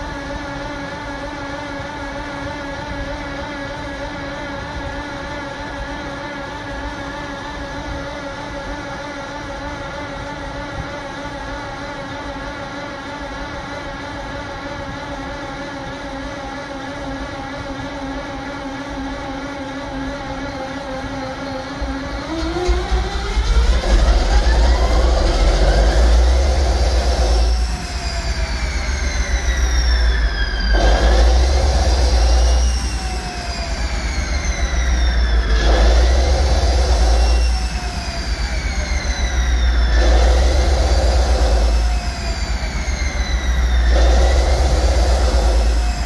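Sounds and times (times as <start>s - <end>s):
diesel engine low rumble: 0.0s - 46.0s
locomotive starter whine: 14.6s - 46.0s.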